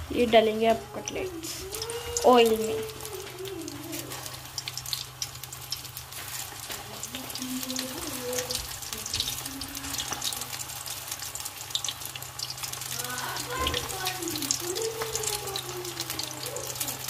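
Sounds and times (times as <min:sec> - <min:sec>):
deep-frying sizzle with pops: 0:00.0 - 0:17.0.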